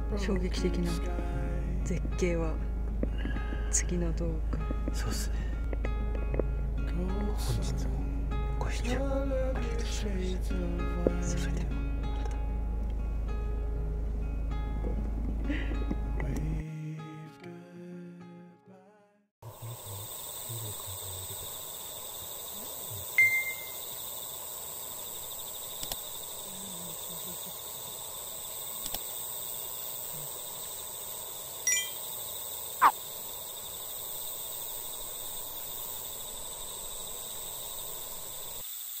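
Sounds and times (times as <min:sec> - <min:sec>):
insects chirring: 0:00.0 - 0:07.4, 0:19.4 - 0:39.0.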